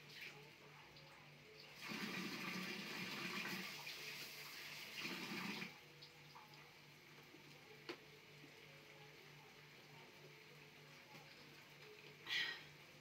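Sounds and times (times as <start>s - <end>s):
water running from tap: 1.6s - 6.7s.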